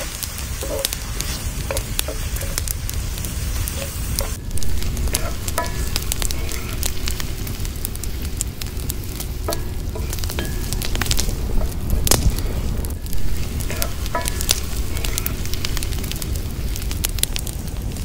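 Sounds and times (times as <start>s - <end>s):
onions sizzling in hot oil: 0.0s - 18.0s
wood fire crackling: 0.0s - 18.0s
wooden spatula scraping pan: 3.6s - 16.2s.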